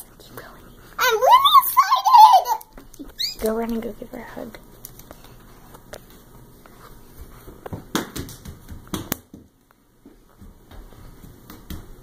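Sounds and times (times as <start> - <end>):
bare feet running on hard floor: 7.1 - 12.0.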